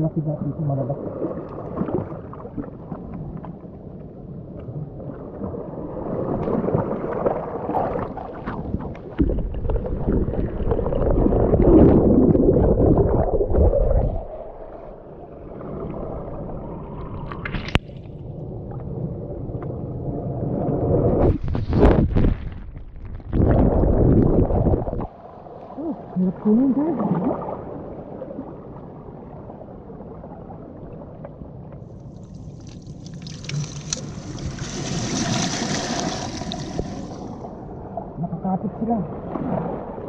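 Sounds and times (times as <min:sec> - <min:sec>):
seawater surging around rocks: 0:32.9 - 0:37.6.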